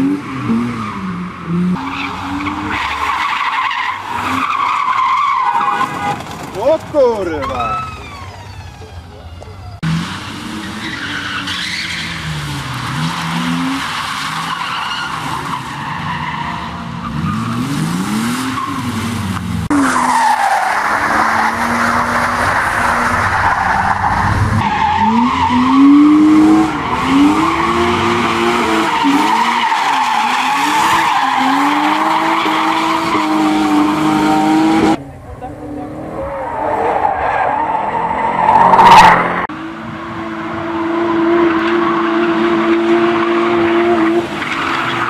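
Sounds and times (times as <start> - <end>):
car engines revving: 0.0 - 45.0
tyres squealing: 1.8 - 9.8.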